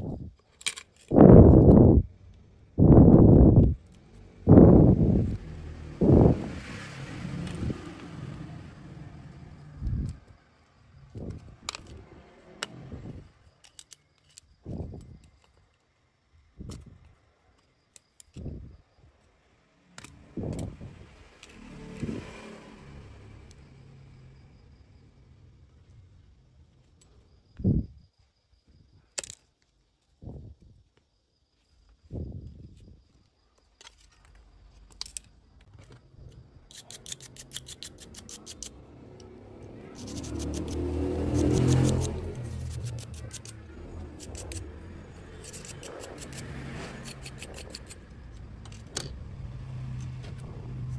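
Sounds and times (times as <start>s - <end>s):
small brush scrubbing circuit board: 36.7s - 38.8s, 39.9s - 48.1s.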